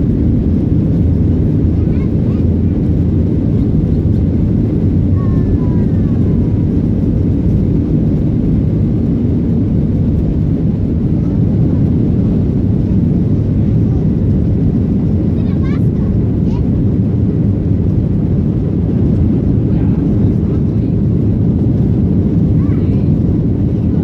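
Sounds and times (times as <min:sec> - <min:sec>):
jet engines roaring in cabin: 0:00.0 - 0:24.0.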